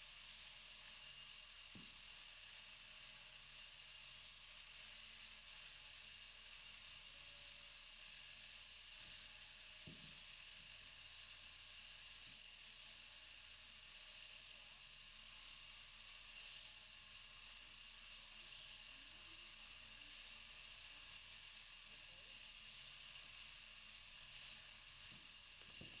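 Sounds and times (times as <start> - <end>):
shearing handpiece whirring: 21.0 - 26.0.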